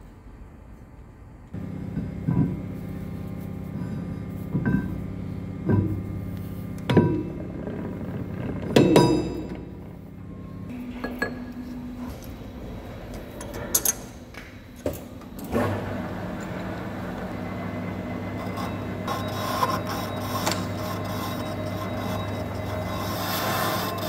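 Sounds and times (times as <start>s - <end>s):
lathe running with a hum: 1.6s - 24.0s
tool cutting steel: 18.4s - 24.0s.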